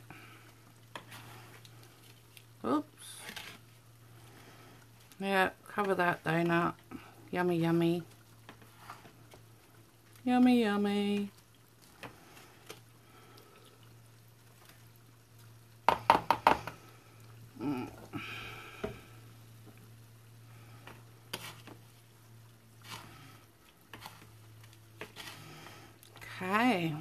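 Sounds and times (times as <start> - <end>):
oil sizzling: 0.0 - 27.0
metal spatula knocking on pan: 15.9 - 16.7.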